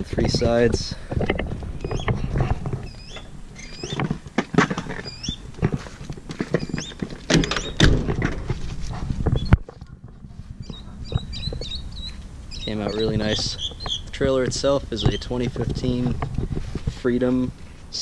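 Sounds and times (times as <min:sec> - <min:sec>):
birds chirping: 0:00.0 - 0:08.1, 0:08.7 - 0:18.0
latch click: 0:07.3 - 0:08.2.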